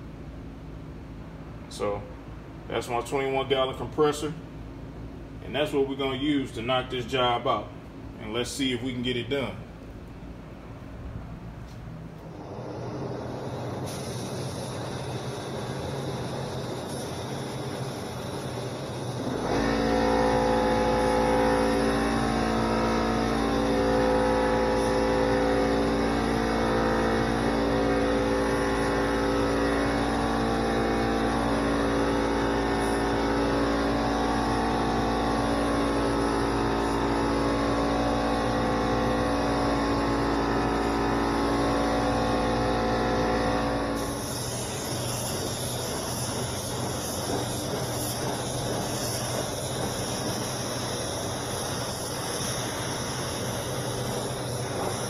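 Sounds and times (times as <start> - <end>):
air compressor running: 9.4 - 55.0
spray gun air hissing: 12.8 - 55.0.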